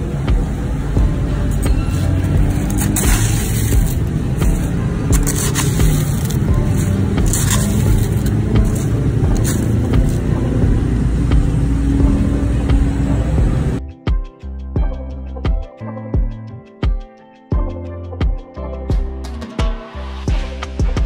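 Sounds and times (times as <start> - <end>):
steady low rumble: 0.0 - 13.9
plastic scoop scraping crushed ice: 1.9 - 10.2.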